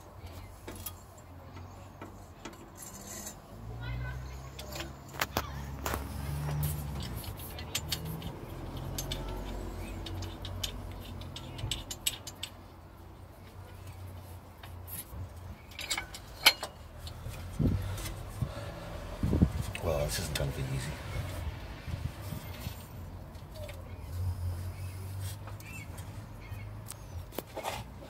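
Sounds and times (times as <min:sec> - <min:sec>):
metallic clicks of parts handled: 0:04.6 - 0:12.8, 0:14.6 - 0:18.2.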